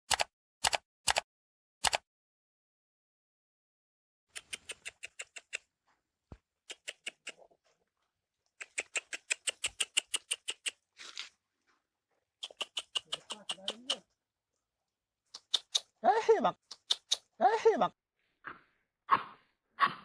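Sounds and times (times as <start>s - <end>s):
small animal clicking chirps: 4.3s - 5.7s, 6.7s - 7.4s, 8.6s - 10.8s, 12.4s - 14.0s, 15.3s - 16.0s, 16.6s - 17.3s.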